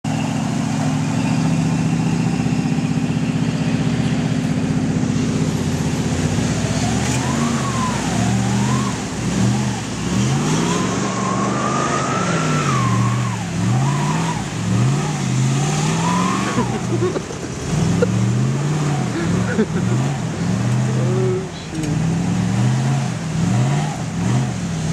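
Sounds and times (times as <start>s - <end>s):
whining tone: 0.0s - 17.2s
truck engine revving: 0.0s - 24.9s.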